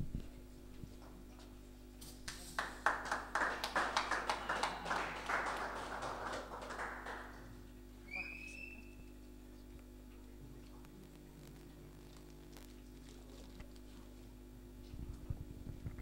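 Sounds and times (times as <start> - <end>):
audience clapping: 2.2 - 7.6.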